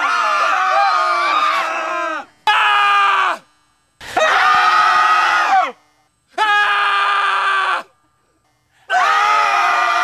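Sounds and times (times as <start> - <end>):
people screaming: 0.0 - 3.4, 4.0 - 5.8, 6.4 - 7.9, 8.9 - 10.0.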